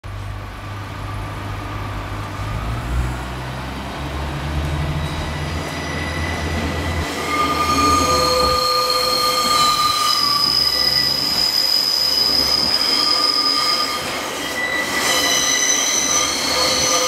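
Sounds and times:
diesel train drone: 0.0 - 17.0
wheel squeal: 4.9 - 17.0.

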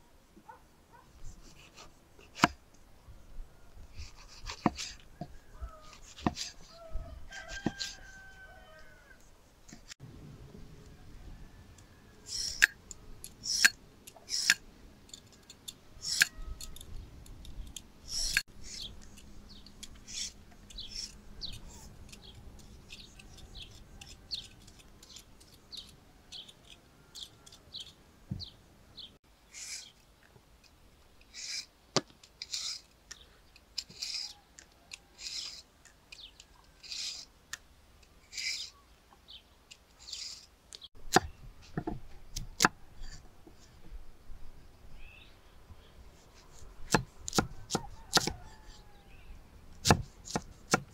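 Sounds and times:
peeler scraping carrot: 3.9 - 5.1, 5.8 - 6.8, 12.2 - 27.9, 29.5 - 30.0, 31.2 - 31.7, 32.3 - 33.0, 33.8 - 37.3, 38.2 - 38.8, 39.9 - 41.3, 46.4 - 48.8.

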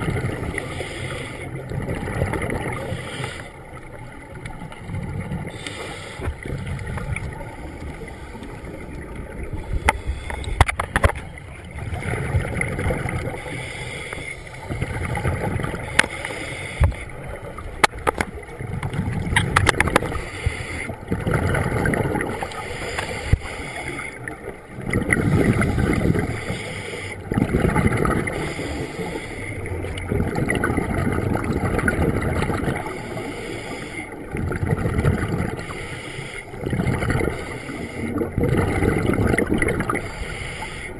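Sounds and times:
underwater regulator bubbling exhalations: 24.8 - 40.5.

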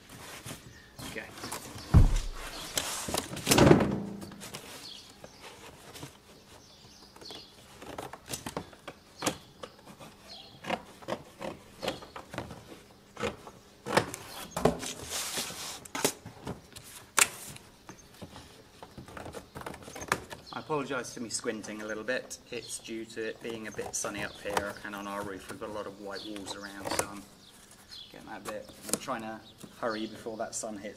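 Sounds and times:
cardboard knocks and scrapes: 0.1 - 8.7
heavy thump on cardboard box: 1.8 - 2.7.

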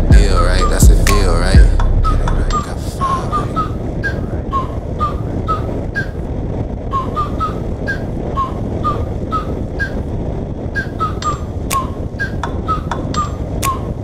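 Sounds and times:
wind and motorcycle engine noise: 0.0 - 14.0
scattered clicks: 1.0 - 1.4.

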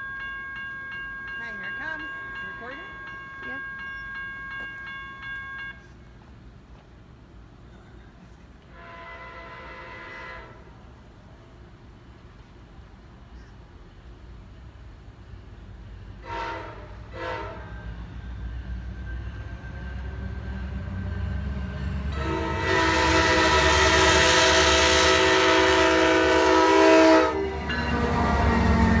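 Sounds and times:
train rumble: 0.0 - 29.0
train horn: 8.7 - 10.8, 16.2 - 18.0, 22.1 - 29.0.

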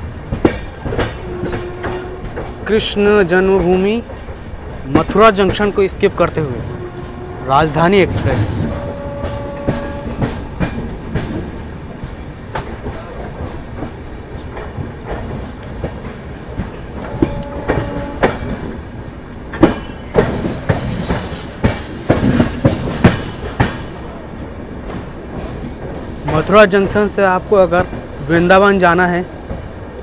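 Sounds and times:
train wheels clacking over rail joints: 0.0 - 7.0, 8.3 - 27.1
train rumble: 0.0 - 30.0.

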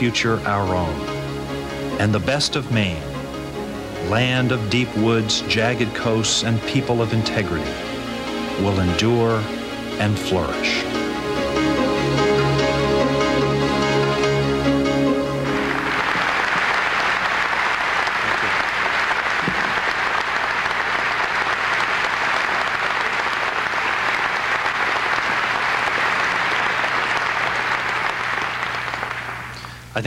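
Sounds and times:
instrumental music: 0.0 - 29.7
audience applauding: 15.1 - 29.9.

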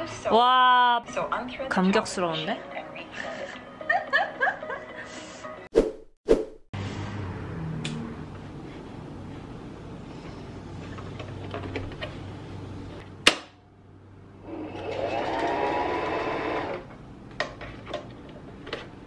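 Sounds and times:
sewing machine motor whirring: 14.4 - 16.9.

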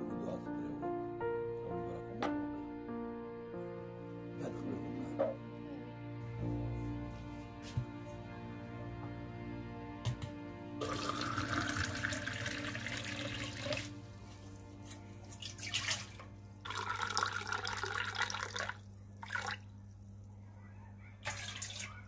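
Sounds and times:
soft background music: 0.0 - 18.8
water splashing into metal bowl: 10.8 - 13.9, 15.3 - 19.7, 21.2 - 22.0.

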